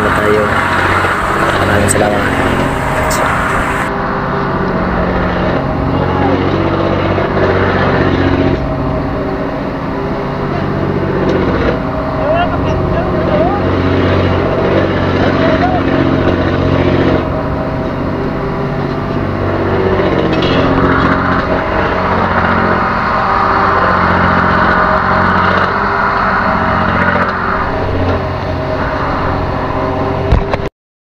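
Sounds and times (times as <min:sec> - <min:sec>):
broad hiss: 0:00.0 - 0:03.9
boat engine droning: 0:00.0 - 0:30.7.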